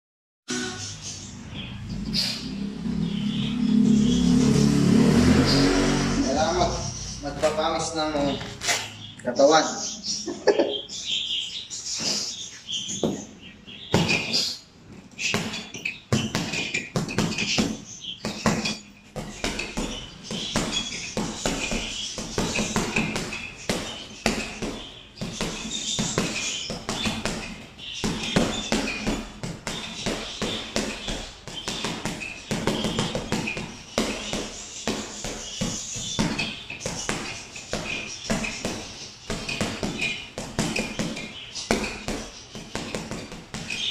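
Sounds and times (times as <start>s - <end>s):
boxing gloves punching heavy bag: 13.9s - 14.4s, 15.1s - 43.9s.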